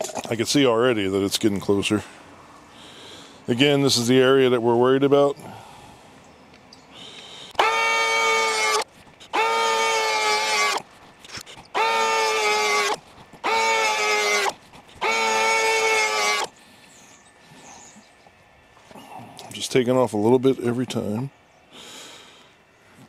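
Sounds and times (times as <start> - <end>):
power planer whining: 7.6 - 16.6.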